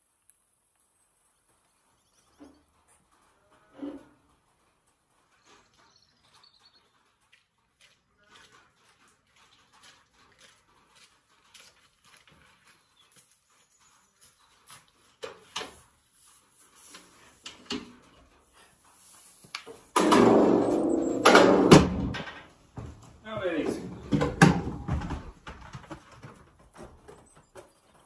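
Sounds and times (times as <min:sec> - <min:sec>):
metal ramp bang: 0:19.9 - 0:22.5
metal ramp clattering: 0:19.9 - 0:23.0.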